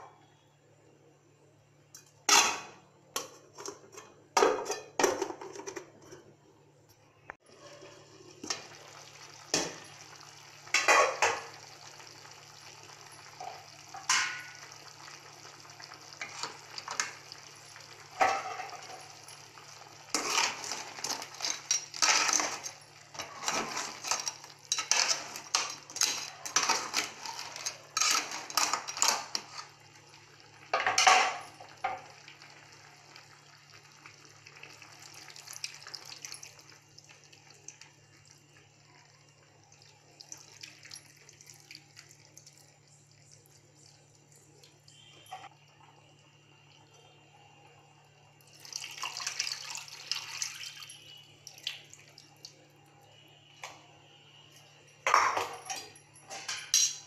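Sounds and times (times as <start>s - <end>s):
metal spoon scraping a pan: 20.1s - 29.7s.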